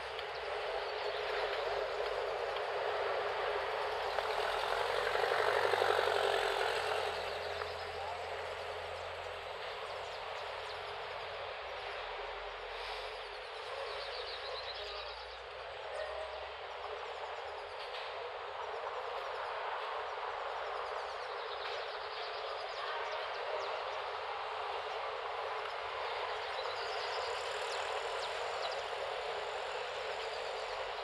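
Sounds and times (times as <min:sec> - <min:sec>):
passing vehicle rumble: 0:00.0 - 0:13.8
outdoor background noise: 0:00.0 - 0:31.0.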